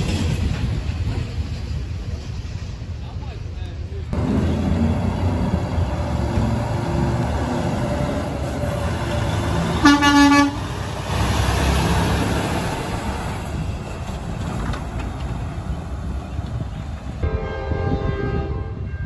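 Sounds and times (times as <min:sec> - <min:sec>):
truck diesel engine running: 0:04.2 - 0:17.2.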